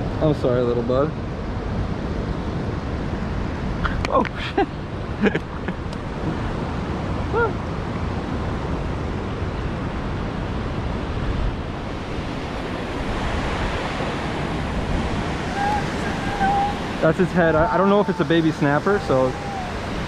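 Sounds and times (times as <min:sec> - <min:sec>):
wind on microphone: 0:01.3 - 0:20.0
water rushing over dam: 0:11.7 - 0:20.0.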